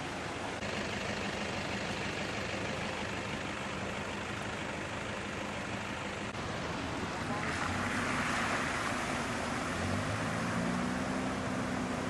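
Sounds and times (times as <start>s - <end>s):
engine idling low: 0.0s - 6.4s
floodwater rushing: 0.0s - 12.0s.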